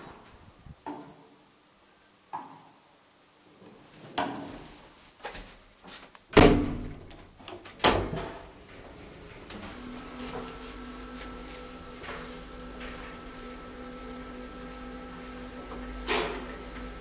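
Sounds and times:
elevator machinery hum: 8.6s - 17.0s.

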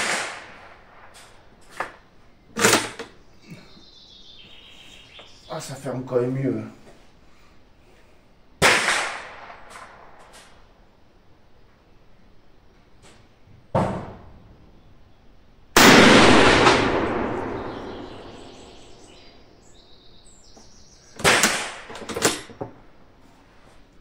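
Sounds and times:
rifle shot echoing: 0.0s - 1.5s, 8.6s - 10.6s, 15.8s - 19.6s, 21.2s - 22.0s.

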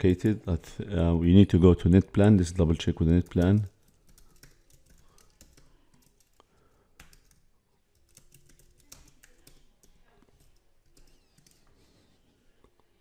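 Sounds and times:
typing on a computer keyboard: 3.0s - 11.7s.

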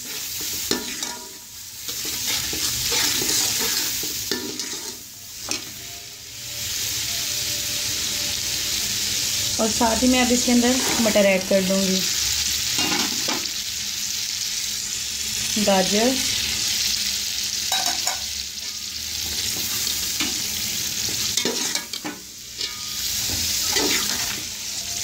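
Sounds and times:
steel spoon scraping a pot: 0.0s - 5.6s, 21.1s - 24.4s
vegetables sizzling in hot oil: 0.0s - 25.0s.

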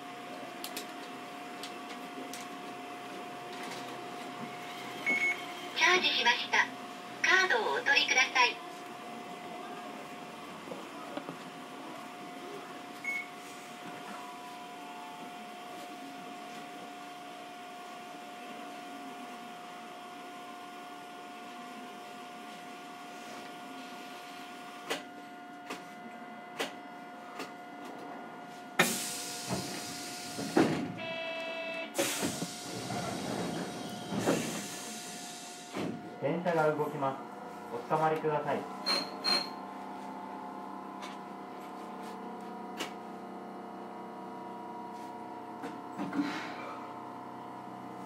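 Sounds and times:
tram humming with whine: 0.0s - 48.0s
short buzzer tone: 31.0s - 32.0s, 38.8s - 39.6s.

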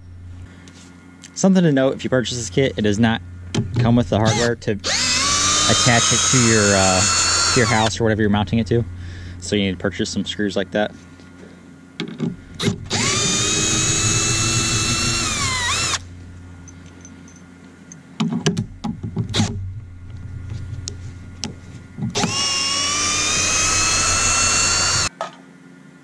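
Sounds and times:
cordless drill motor whine: 4.1s - 9.5s, 12.5s - 16.1s, 22.2s - 25.1s.

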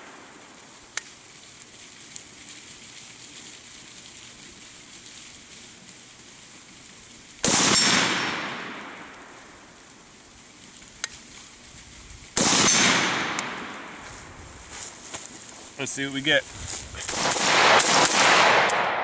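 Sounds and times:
gunshot echo: 7.4s - 9.3s, 12.4s - 14.0s, 17.0s - 19.0s
rifle shot: 7.4s - 9.3s, 12.4s - 14.0s, 17.0s - 19.0s.

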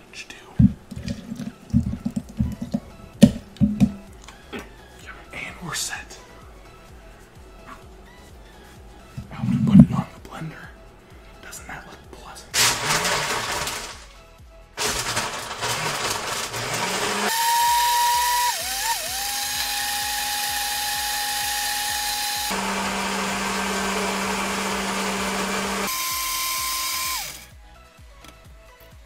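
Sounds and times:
blender motor whining: 12.6s - 14.0s, 14.8s - 27.5s.

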